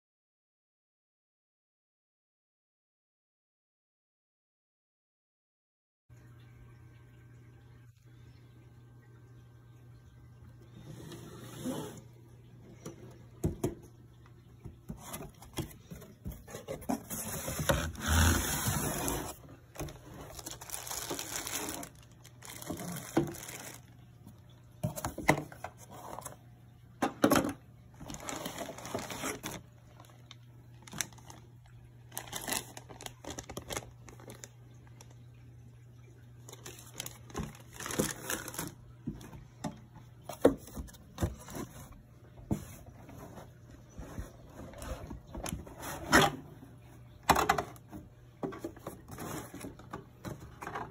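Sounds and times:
cardboard and plastic rustling: 0:14.6 - 0:26.4, 0:27.2 - 0:35.2, 0:36.5 - 0:46.4, 0:47.3 - 0:50.9.

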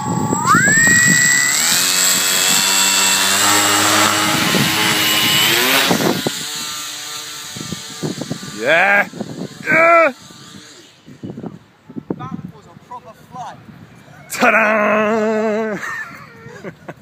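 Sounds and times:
electric motor whine: 0:00.0 - 0:10.8
propeller air rush: 0:00.2 - 0:08.6.

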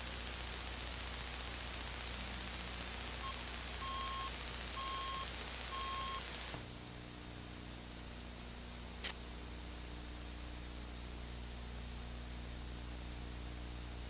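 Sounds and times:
videotape hiss: 0:00.0 - 0:06.7
short electronic beeps: 0:03.2 - 0:06.4.

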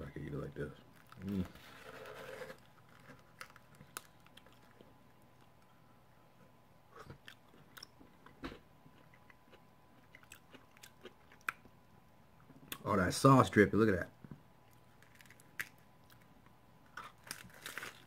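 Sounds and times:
taco shell crackling and crunching: 0:00.9 - 0:05.7, 0:14.7 - 0:18.0.

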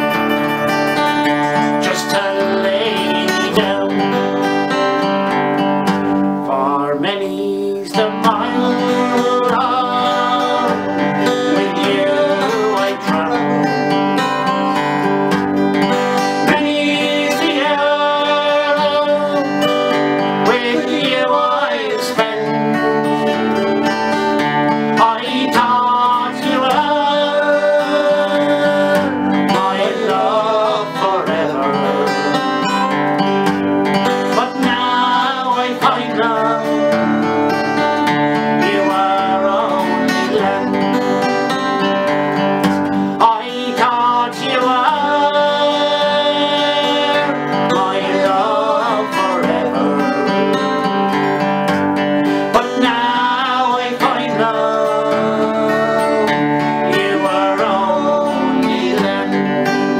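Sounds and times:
acoustic guitars playing: 0:00.0 - 0:59.9
men singing a ballad: 0:01.2 - 0:04.7, 0:06.5 - 0:14.6, 0:15.9 - 0:32.9, 0:34.1 - 0:51.6, 0:52.3 - 0:59.9.

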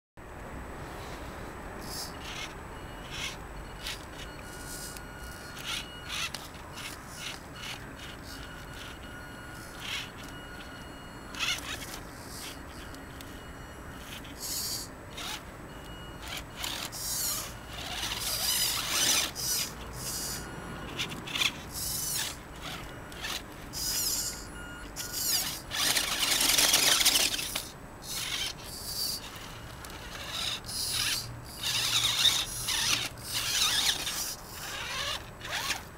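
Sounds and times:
rc car motor whine: 0:01.8 - 0:35.9.

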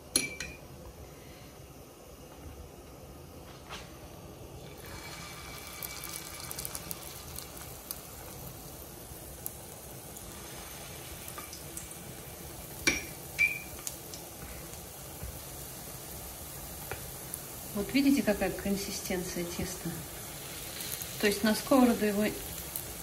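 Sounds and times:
oil sizzling in frying pan: 0:03.1 - 0:23.0.

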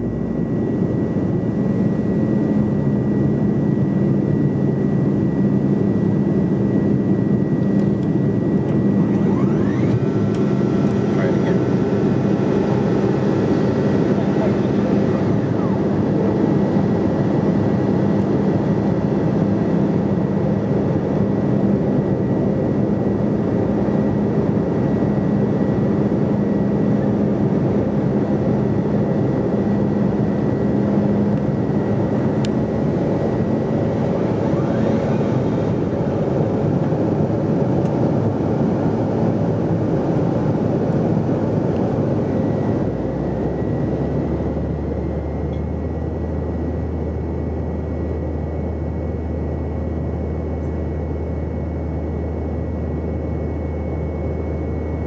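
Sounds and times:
airplane cabin roar: 0:00.0 - 0:55.0.

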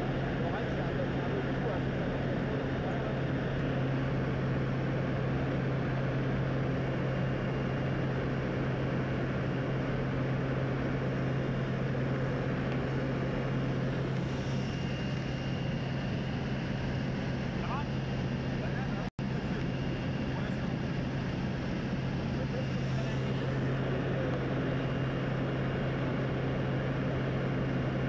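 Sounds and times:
propeller plane engine droning: 0:00.0 - 0:28.0.

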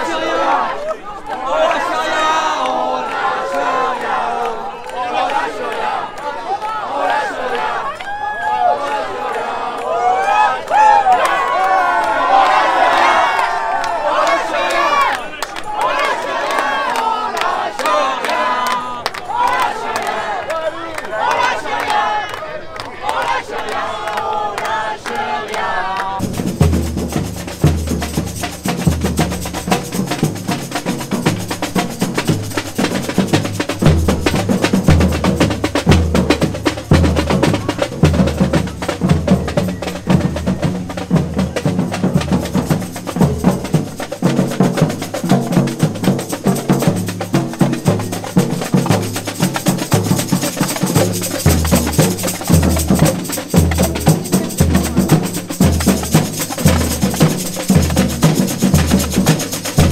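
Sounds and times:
marching drum band: 0:26.2 - 0:59.9.

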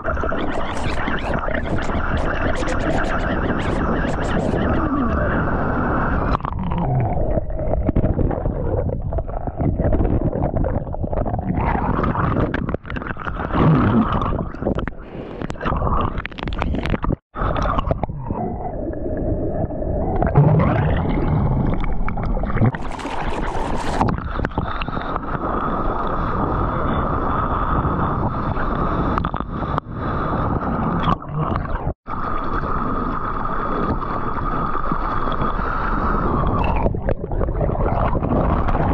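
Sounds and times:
water splashing: 0:00.0 - 0:25.6
underwater rush of water: 0:00.0 - 0:38.9.

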